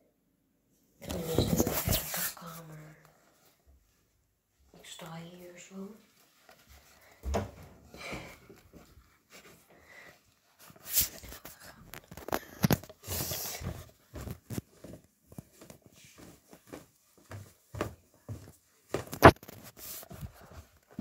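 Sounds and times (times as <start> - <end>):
microphone rubbing on clothing: 1.1 - 2.6.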